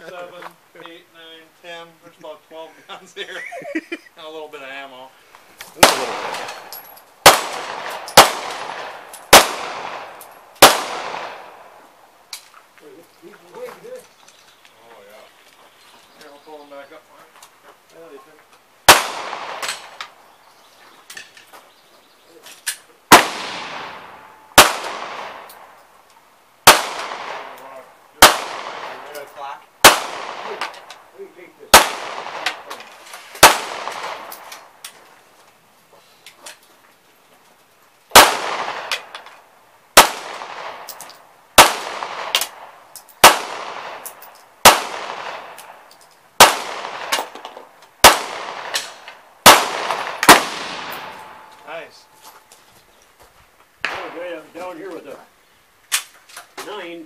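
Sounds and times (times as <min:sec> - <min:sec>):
handgun shots echoing: 0:05.8 - 0:11.7, 0:18.9 - 0:20.2, 0:23.1 - 0:25.8, 0:26.6 - 0:31.0, 0:31.7 - 0:34.7, 0:38.1 - 0:39.3, 0:40.0 - 0:45.8, 0:46.4 - 0:51.6.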